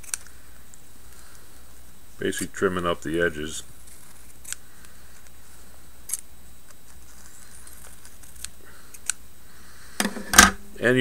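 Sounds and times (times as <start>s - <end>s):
small scissors snipping paper: 0.0s - 0.3s, 6.1s - 9.2s
steady low hum: 0.0s - 11.0s.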